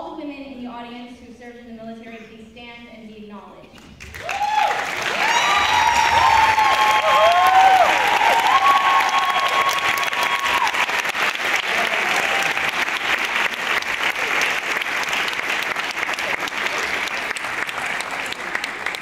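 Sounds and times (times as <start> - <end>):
audience applauding: 3.8 - 19.0.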